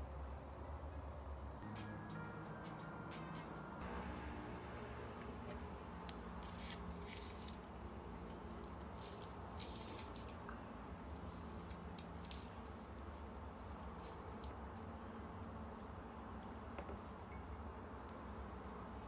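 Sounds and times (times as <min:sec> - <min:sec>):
low room hum: 0:03.8 - 0:19.0.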